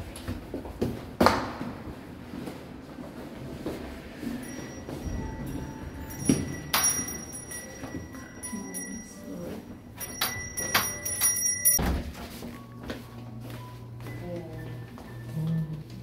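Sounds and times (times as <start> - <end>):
door chime ringing: 4.2 - 12.1.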